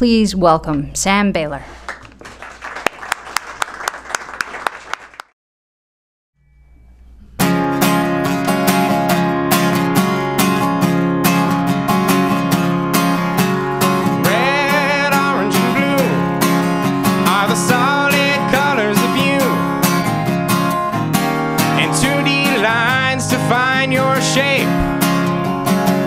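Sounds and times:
acoustic guitar strumming: 0:06.4 - 0:26.0
man singing: 0:14.0 - 0:20.0, 0:21.6 - 0:25.3.

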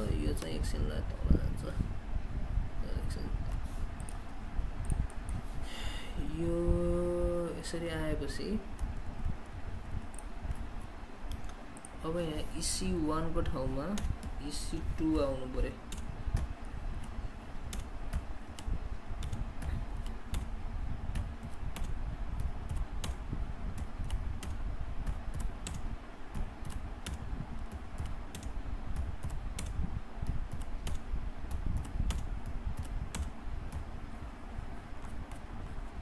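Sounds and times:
steady low hum: 0:00.0 - 0:36.0
keyboard typing: 0:15.9 - 0:33.9.

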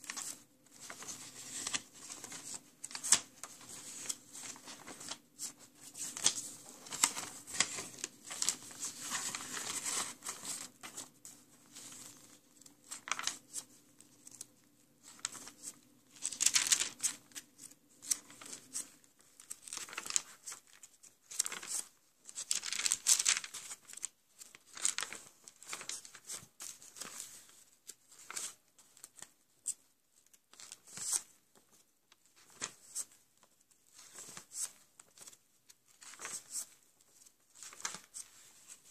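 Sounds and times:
paper pages flipping: 0:00.0 - 0:31.8, 0:32.4 - 0:38.9.

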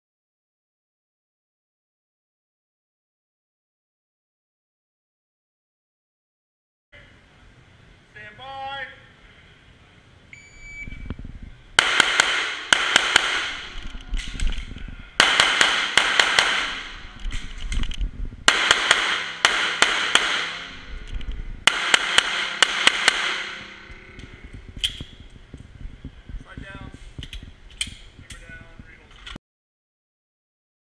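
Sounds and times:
pistol shots echoing indoors: 0:11.8 - 0:13.8, 0:15.2 - 0:17.0, 0:18.5 - 0:20.8, 0:21.7 - 0:23.7.

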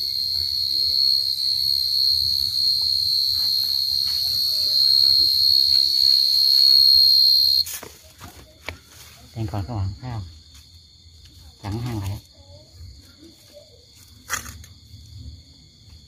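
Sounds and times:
cricket trilling: 0:00.0 - 0:07.8.

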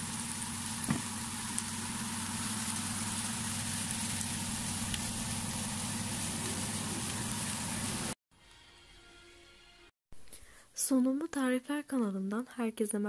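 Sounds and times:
oven fan whirring: 0:00.0 - 0:08.2.

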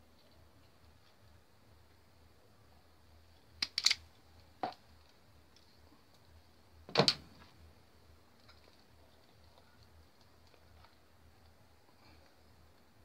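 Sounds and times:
plastic clicks and snaps: 0:03.6 - 0:04.0.

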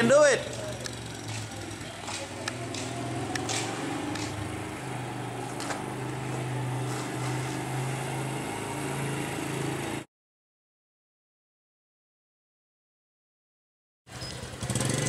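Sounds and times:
motorbike engine running: 0:00.4 - 0:10.0, 0:14.2 - 0:15.0.

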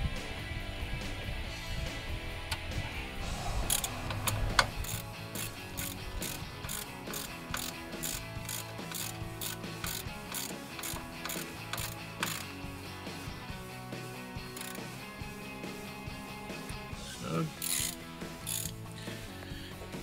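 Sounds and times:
ratchet wrench clicking: 0:04.8 - 0:12.6, 0:14.5 - 0:14.9, 0:17.6 - 0:18.8.

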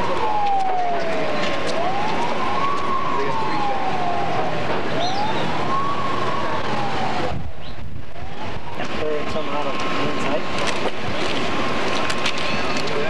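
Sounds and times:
siren wailing: 0:00.0 - 0:09.9.

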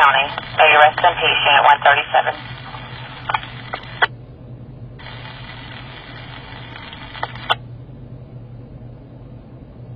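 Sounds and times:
radio hiss: 0:00.0 - 0:04.1, 0:05.0 - 0:07.6
sharp radio clicks: 0:00.0 - 0:04.1, 0:06.1 - 0:07.6
steady low hum: 0:00.0 - 0:09.9.

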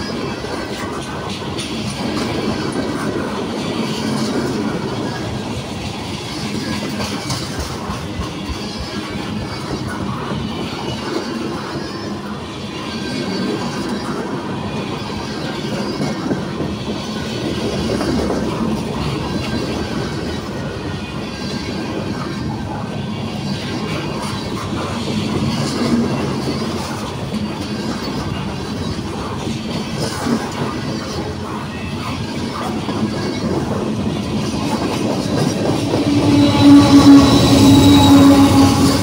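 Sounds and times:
train wheels clicking: 0:00.0 - 0:10.3
freight train rumbling past: 0:00.0 - 0:39.0.

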